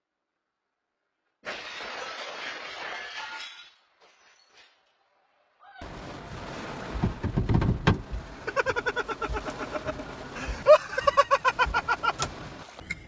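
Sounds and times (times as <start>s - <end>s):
water rushing over windshield: 5.8s - 12.8s
low thumps: 6.8s - 8.4s.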